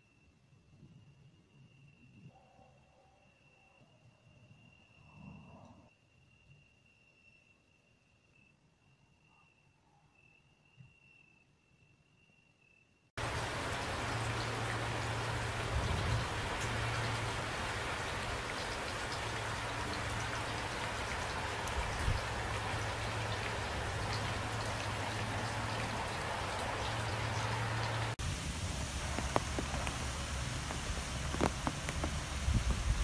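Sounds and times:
heavy rain falling: 0:13.2 - 0:33.0
raindrops tapping: 0:13.2 - 0:33.0.

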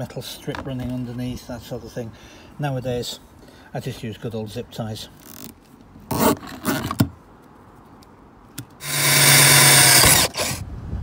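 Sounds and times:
cordless drill boring through plastic: 0:08.8 - 0:10.6.

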